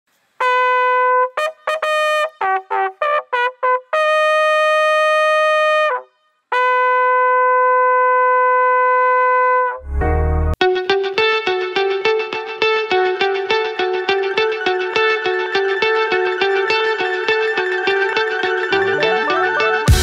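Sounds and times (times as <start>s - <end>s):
bugle call on brass horn: 0.4s - 9.8s.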